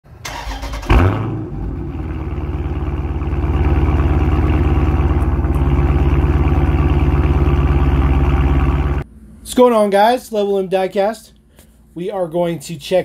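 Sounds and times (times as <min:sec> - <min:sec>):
car engine starting and running: 0:00.1 - 0:09.0.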